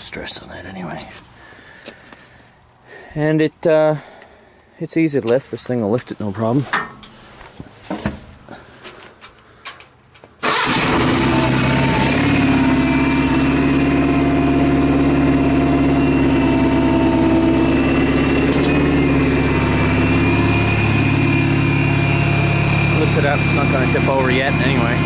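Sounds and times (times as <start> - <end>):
skid steer engine running: 10.4 - 25.0.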